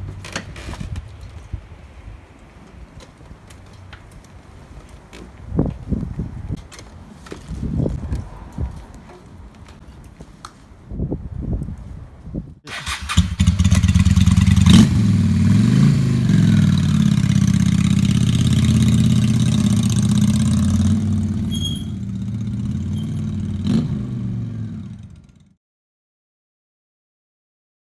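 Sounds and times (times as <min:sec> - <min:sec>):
motorcycle engine revving: 0:12.7 - 0:25.6.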